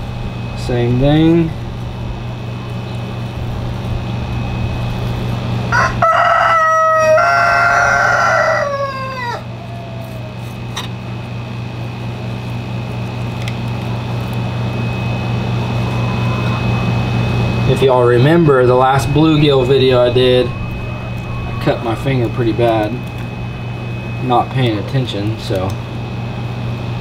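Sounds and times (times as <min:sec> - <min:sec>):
steady hum: 0:00.0 - 0:27.0
rooster crowing: 0:05.6 - 0:10.7, 0:15.5 - 0:17.6, 0:18.8 - 0:24.2.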